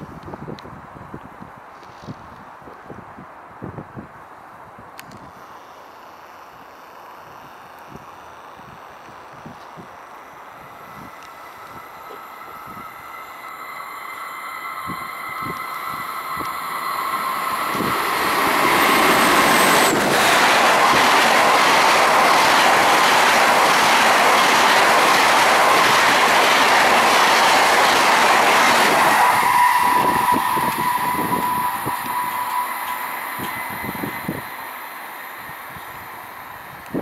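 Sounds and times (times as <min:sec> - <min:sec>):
steady high whine: 0:05.4 - 0:37.0
train rushing past: 0:09.8 - 0:37.0.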